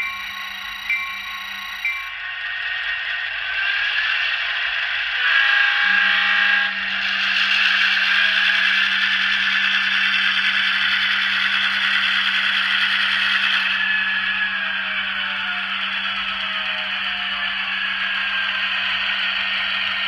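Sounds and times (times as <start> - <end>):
model train running: 0.0 - 20.0
train horn chord: 5.2 - 7.1.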